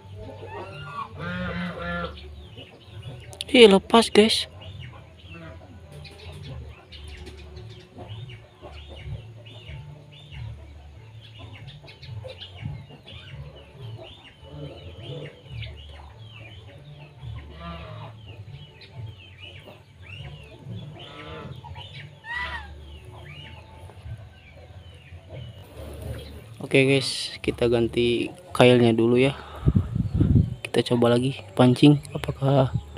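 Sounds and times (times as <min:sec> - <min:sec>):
chickens clucking: 0:00.0 - 0:32.9
loud chicken calls: 0:00.3 - 0:02.2, 0:20.6 - 0:23.6.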